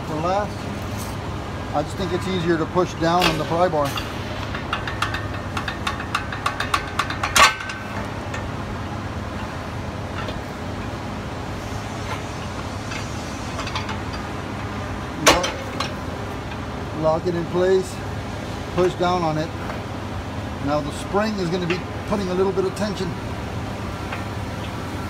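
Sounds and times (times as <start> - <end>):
low background hum: 0.0 - 25.0
sharp metallic clank: 3.1 - 8.5
metal clinking and scraping: 3.1 - 8.6, 9.4 - 11.0, 11.7 - 16.7.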